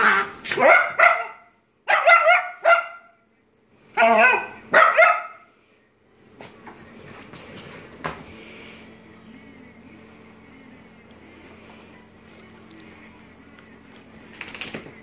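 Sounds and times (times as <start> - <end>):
small dog barking: 0.5 - 3.2, 4.0 - 5.5.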